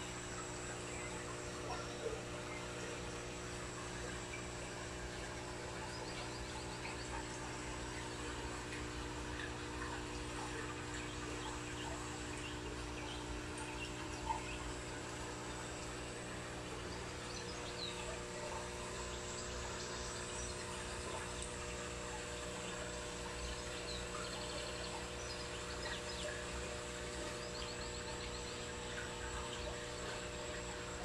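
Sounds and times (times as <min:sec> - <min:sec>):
electrical hum: 0:00.0 - 0:31.0.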